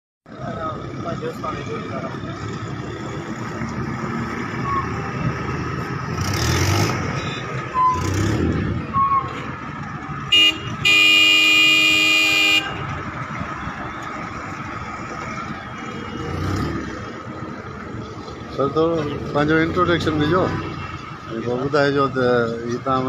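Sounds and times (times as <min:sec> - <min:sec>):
street traffic: 0:00.2 - 0:23.0
car horn: 0:10.3 - 0:13.0.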